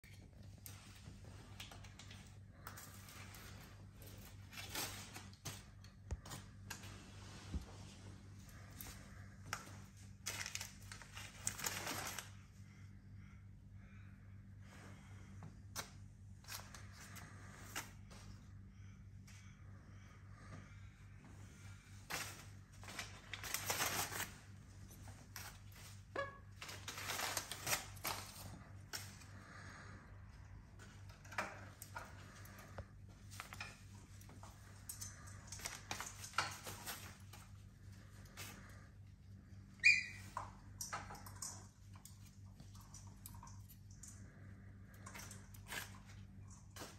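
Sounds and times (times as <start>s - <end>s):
steady low hum: 0.0s - 46.9s
paper rustling and ripping: 10.1s - 12.4s, 22.0s - 24.6s, 25.2s - 29.2s
low hum: 12.4s - 25.9s
cockatoo squeak: 39.8s - 40.3s.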